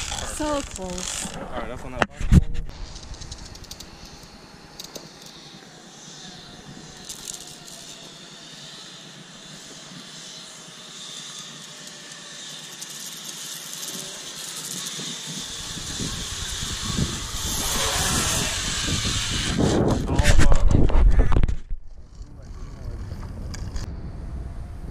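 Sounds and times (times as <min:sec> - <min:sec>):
zip line trolley hissing on cable: 0:00.0 - 0:01.4, 0:02.7 - 0:20.0
low rumble: 0:17.0 - 0:24.9.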